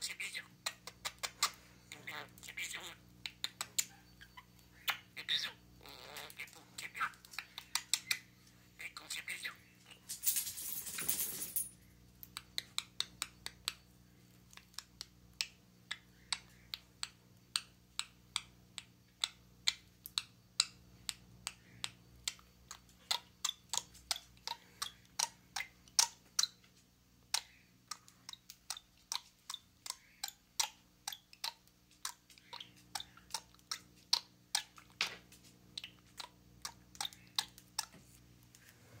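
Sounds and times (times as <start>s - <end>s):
faint hum: 0.0s - 39.0s
budgerigar clicking: 14.6s - 26.6s, 27.3s - 35.0s, 35.7s - 38.0s.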